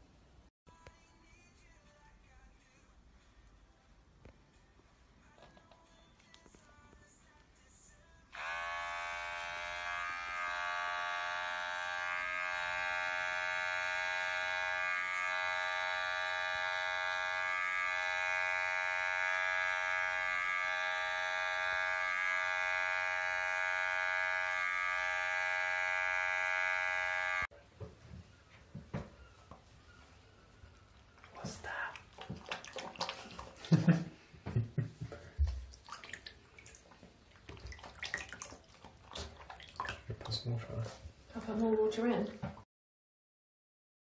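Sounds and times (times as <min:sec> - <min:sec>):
small electric motor buzzing: 0:08.3 - 0:27.5.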